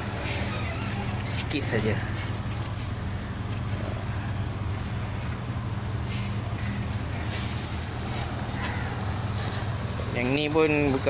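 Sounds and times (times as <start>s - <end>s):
diesel truck engines idling: 0.0s - 11.0s
air hiss: 7.1s - 8.0s.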